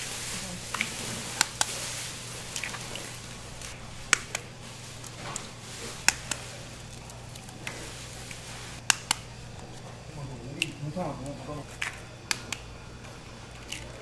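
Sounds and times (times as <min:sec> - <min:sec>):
steady low hum: 0:00.0 - 0:14.0
eggs cracked on a steel pan: 0:04.1 - 0:05.4, 0:06.0 - 0:07.8, 0:08.8 - 0:09.3.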